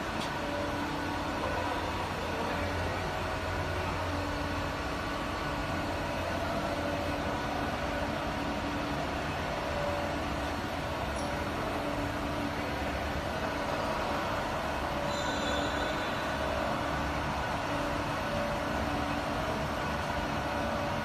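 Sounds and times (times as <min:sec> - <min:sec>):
faint steady tones: 0:00.0 - 0:21.0
milling machine hum: 0:00.0 - 0:21.0.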